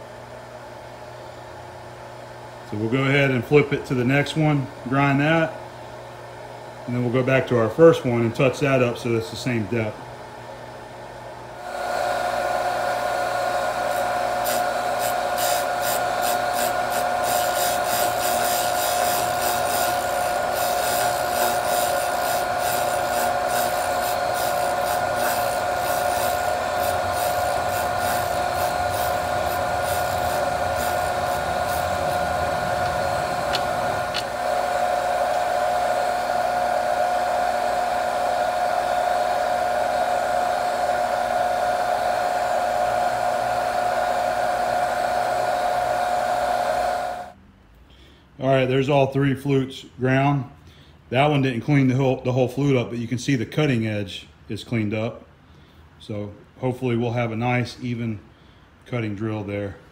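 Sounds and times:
bench grinder humming: 0:11.6 - 0:47.4
steel scraping on grinding wheel: 0:14.4 - 0:34.4.

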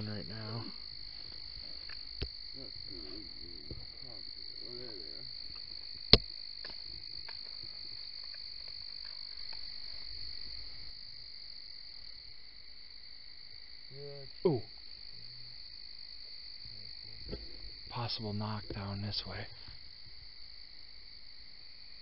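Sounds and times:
frogs and insects trilling: 0:00.0 - 0:22.0
man saying ooh: 0:14.0 - 0:14.7.

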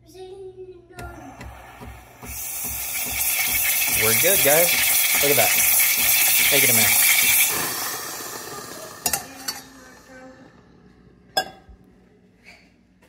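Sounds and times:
espresso steam wand hissing: 0:01.2 - 0:10.1.

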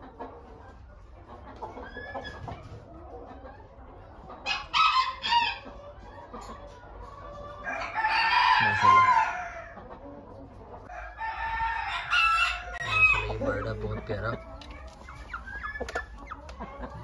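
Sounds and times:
rooster crowing: 0:07.6 - 0:09.8, 0:10.9 - 0:13.4.

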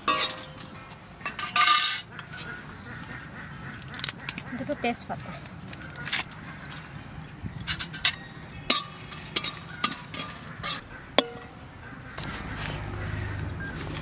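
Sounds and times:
metal spatula clinking on wok: 0:00.0 - 0:00.6.

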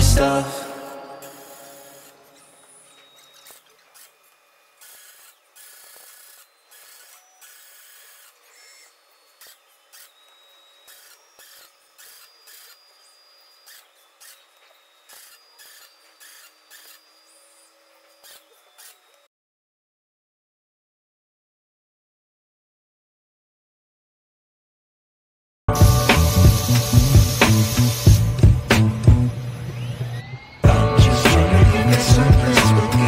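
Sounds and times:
short welding arc hisses: 0:00.6 - 0:04.2, 0:25.7 - 0:29.4.

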